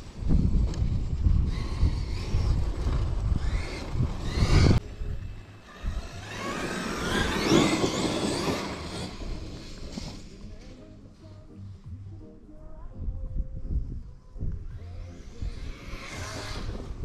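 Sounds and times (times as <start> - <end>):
wind rumble on microphone: 0.0 - 12.1, 12.7 - 17.0
electric motor whining: 1.2 - 10.4, 14.7 - 17.0.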